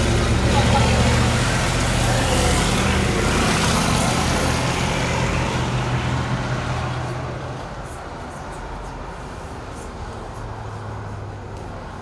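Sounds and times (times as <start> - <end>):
vehicle engine passing by: 0.0 - 7.6.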